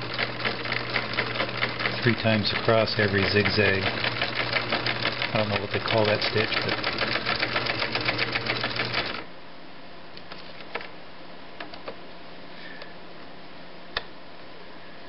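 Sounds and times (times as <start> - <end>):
sewing machine clattering: 0.0 - 9.2.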